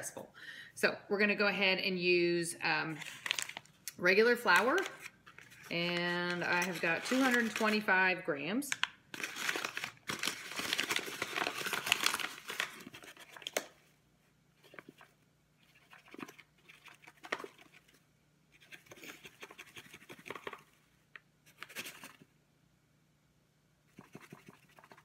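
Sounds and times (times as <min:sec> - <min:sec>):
paper bag crinkling: 0:02.9 - 0:03.8, 0:04.4 - 0:07.9, 0:08.8 - 0:13.7.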